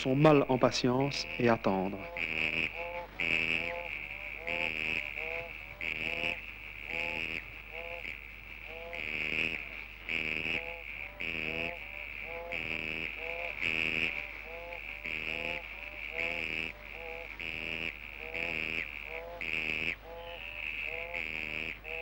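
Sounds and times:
frogs croaking: 0:00.0 - 0:22.0.

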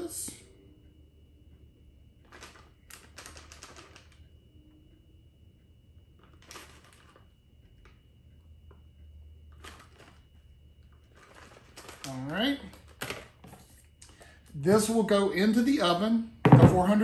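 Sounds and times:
plastic bag crinkling: 0:10.9 - 0:13.4.

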